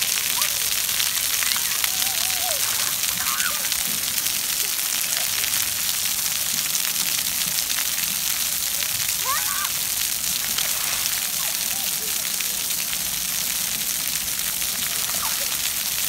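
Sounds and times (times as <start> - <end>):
faint children's voices: 0.0 - 6.5, 8.4 - 9.9, 10.6 - 13.0, 14.8 - 15.9
water jets spraying on concrete: 0.0 - 16.0.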